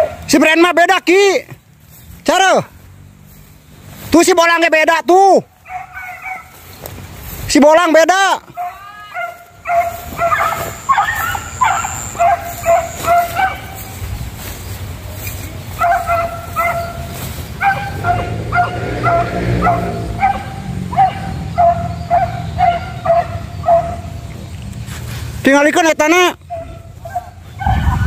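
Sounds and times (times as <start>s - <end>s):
hound yelping barks: 5.6s - 6.8s, 8.5s - 14.2s, 15.2s - 24.3s, 26.4s - 28.0s.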